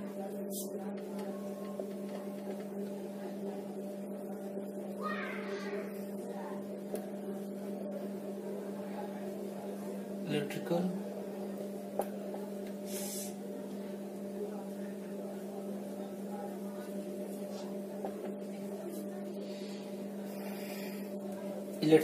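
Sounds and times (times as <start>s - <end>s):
low electrical hum: 0.0s - 22.0s.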